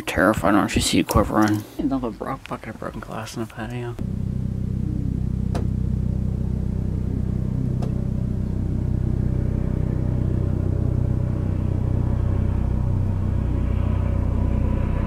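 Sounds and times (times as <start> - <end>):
engine humming at idle: 4.0 - 15.0.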